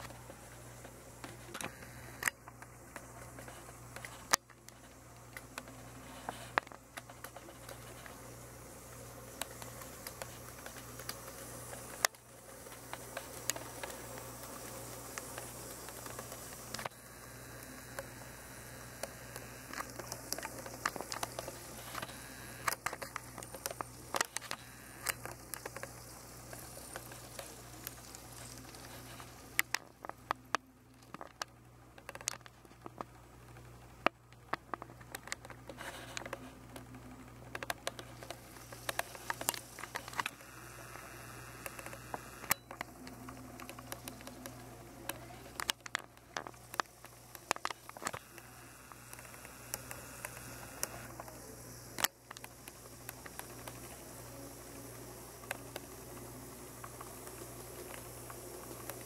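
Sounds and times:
model trains humming: 0:00.0 - 0:29.8, 0:37.2 - 0:59.0.

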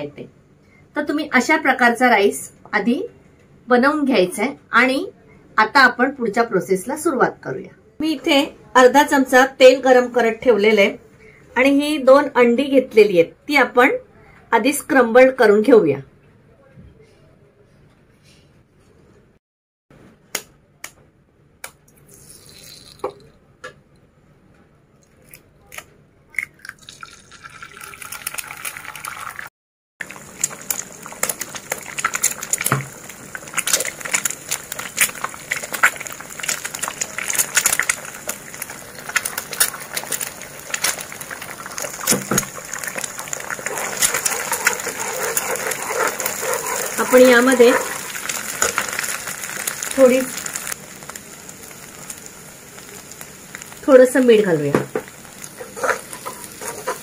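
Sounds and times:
eggs sizzling in hot oil: 0:26.4 - 0:57.0
plastic spatula stirring: 0:38.6 - 0:49.6, 0:55.5 - 0:57.0.

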